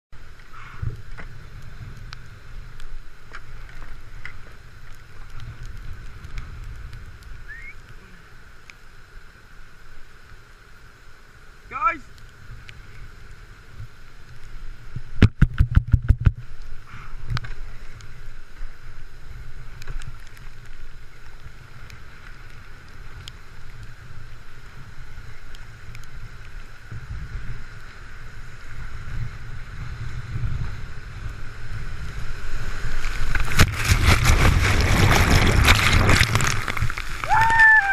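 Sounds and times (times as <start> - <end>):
white water rushing: 6.7 - 15.2, 30.8 - 37.9.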